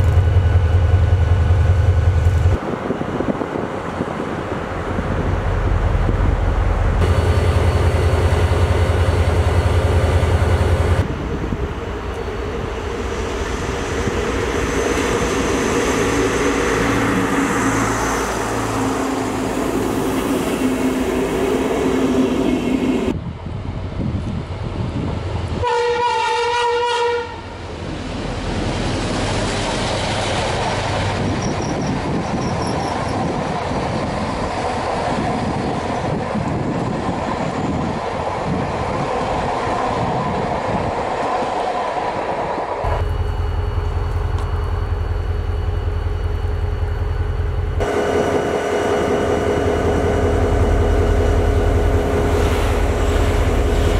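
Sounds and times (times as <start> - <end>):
passenger trains running past: 0.0 - 53.9
train horn: 25.6 - 27.5, 47.8 - 53.9.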